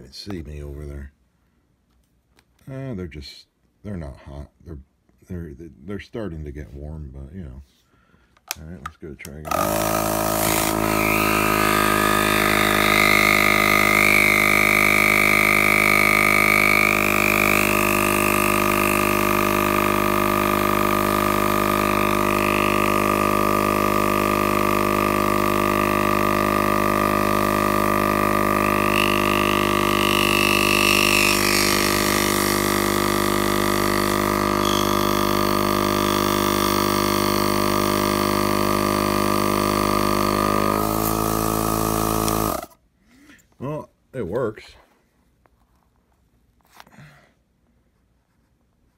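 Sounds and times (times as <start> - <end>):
compressor motor humming and whining: 9.4 - 42.8.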